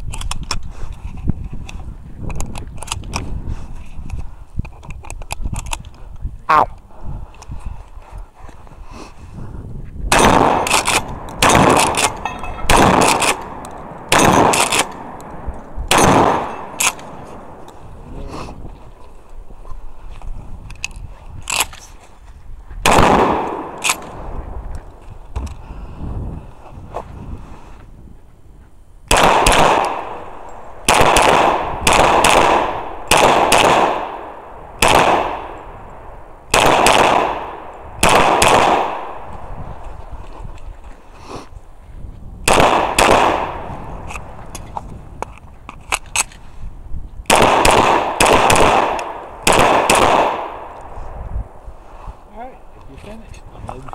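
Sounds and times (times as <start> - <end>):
gunshots: 10.1 - 17.6, 22.8 - 24.3, 29.1 - 35.7, 36.5 - 39.3, 42.4 - 44.4, 47.3 - 50.8
pistol shots: 10.1 - 17.6, 22.8 - 24.2, 29.1 - 39.4, 42.4 - 44.4, 47.3 - 50.8.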